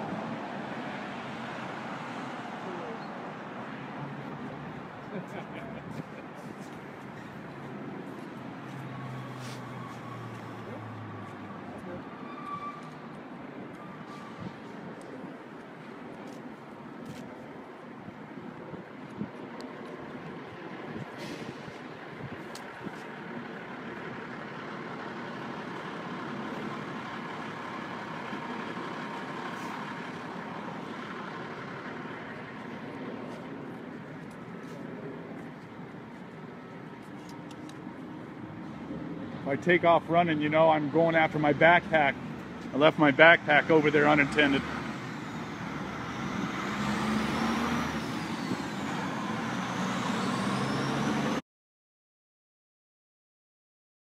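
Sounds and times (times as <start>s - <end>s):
street traffic: 0.0s - 51.4s
truck engine and road rumble: 0.0s - 51.4s
heavy vehicle engine running: 20.0s - 39.4s.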